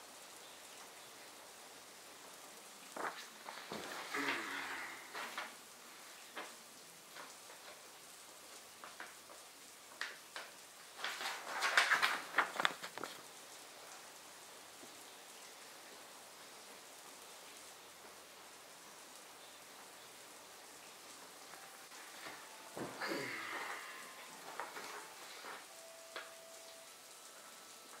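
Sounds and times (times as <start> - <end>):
paper rustling: 3.0 - 5.6, 10.4 - 13.3.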